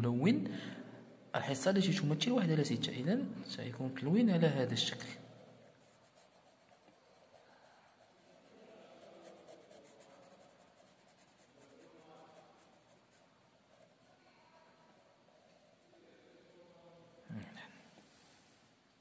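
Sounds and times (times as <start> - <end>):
marker scratching on paper: 5.6 - 14.1.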